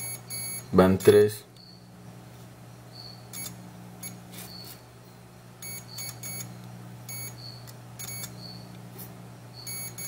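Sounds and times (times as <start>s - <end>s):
multimeter beeps: 0.0s - 0.8s, 1.6s - 1.9s, 2.9s - 4.8s, 5.6s - 8.8s, 9.5s - 10.0s
low electrical hum: 0.0s - 10.0s
probe clicks: 3.0s - 4.2s, 5.6s - 8.8s.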